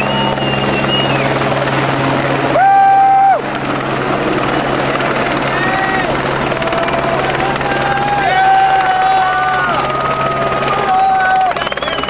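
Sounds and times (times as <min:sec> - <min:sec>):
helicopter drone: 0:00.0 - 0:12.0.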